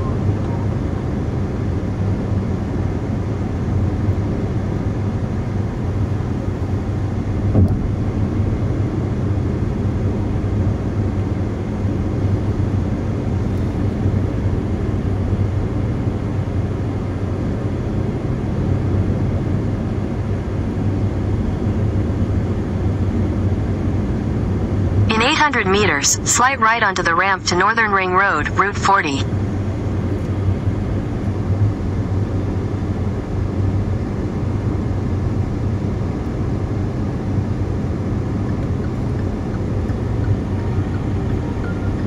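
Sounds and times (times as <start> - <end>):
car engine and tyre noise: 29.4 - 42.0.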